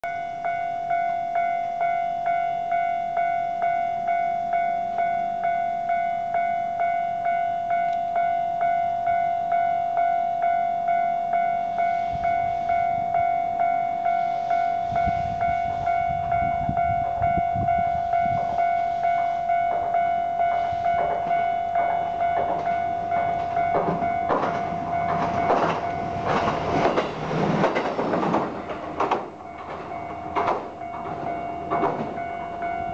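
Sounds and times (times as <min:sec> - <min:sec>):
level crossing warning bell: 0:00.0 - 0:32.9
diesel railcar rumble: 0:00.1 - 0:32.9
train wheels clattering over rail joints: 0:19.7 - 0:32.4.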